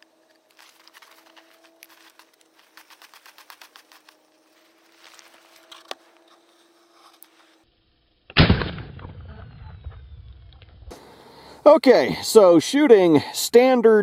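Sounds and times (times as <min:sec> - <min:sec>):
loud pistol shot: 0:08.3 - 0:10.0.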